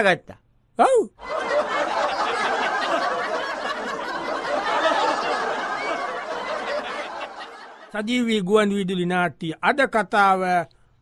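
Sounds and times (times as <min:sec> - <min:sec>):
crowd laughing and chattering: 0:01.2 - 0:08.0.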